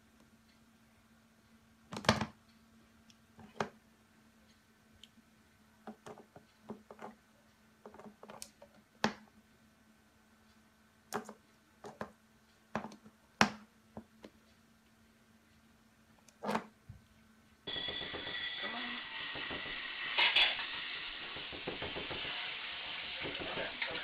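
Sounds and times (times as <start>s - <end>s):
faint steady hum: 0.0s - 21.5s.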